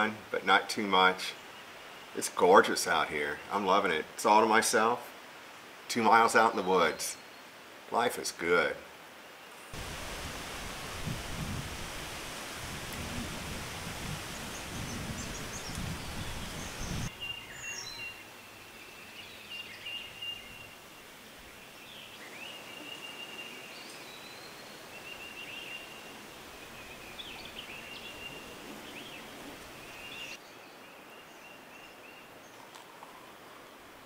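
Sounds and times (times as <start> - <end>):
small birds chirping: 13.9 - 33.6.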